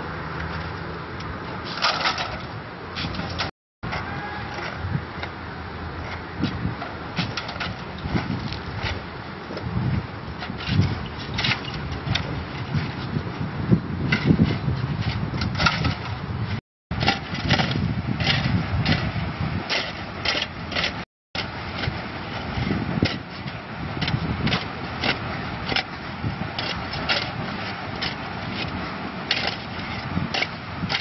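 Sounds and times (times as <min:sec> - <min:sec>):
shovels scraping into gravel: 0:01.6 - 0:03.5, 0:17.0 - 0:31.0.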